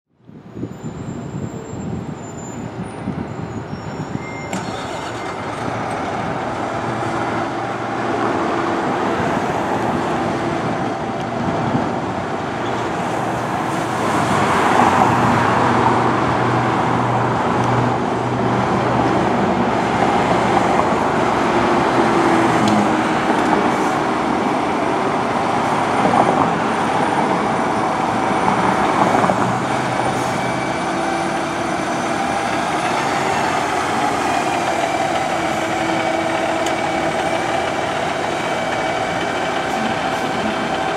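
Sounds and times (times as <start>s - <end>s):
diesel engine running: 17.4s - 40.9s.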